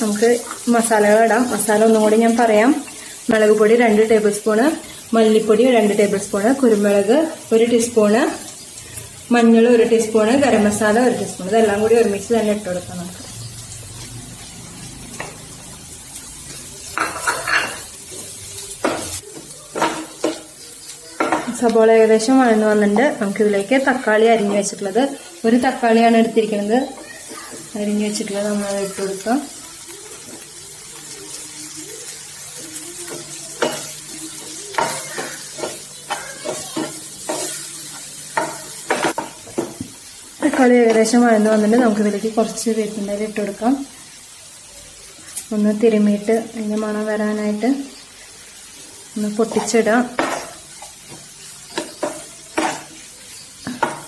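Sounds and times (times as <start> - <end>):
onions sizzling: 0.0 - 54.0
spatula scraping frying pan: 9.7 - 30.6, 32.0 - 41.2, 48.4 - 54.0.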